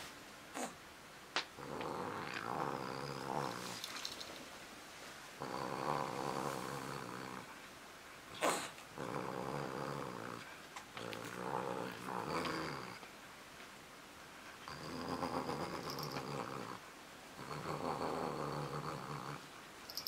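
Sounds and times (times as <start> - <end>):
cat growling: 1.6 - 3.8, 5.4 - 7.5, 8.4 - 13.0, 14.6 - 16.8, 17.4 - 19.4.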